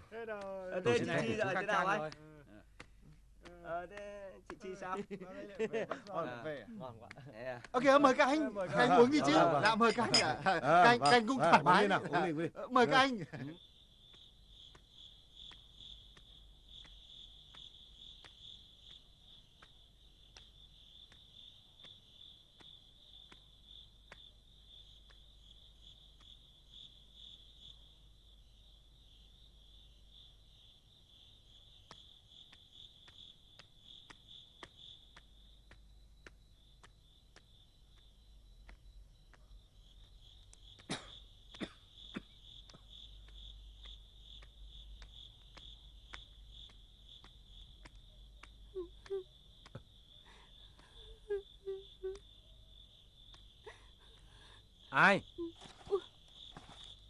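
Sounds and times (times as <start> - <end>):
crickets chirring: 0.0 - 57.0
faint ticks: 13.4 - 27.8, 31.2 - 57.0.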